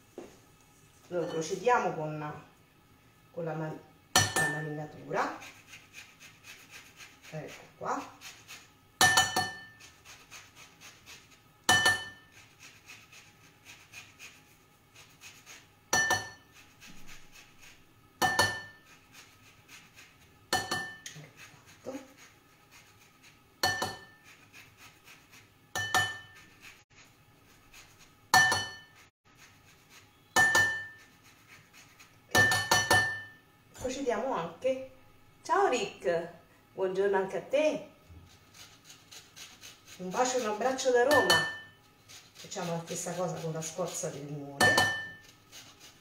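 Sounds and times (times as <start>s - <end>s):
metal grater clinking on bowl: 4.2s - 5.9s, 6.6s - 13.2s, 15.1s - 22.4s, 23.6s - 26.8s, 30.3s - 33.3s, 38.3s - 46.0s.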